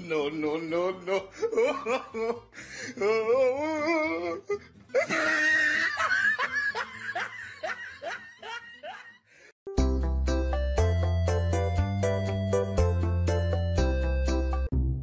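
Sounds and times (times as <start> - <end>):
person laughing heartily: 1.0 - 9.5.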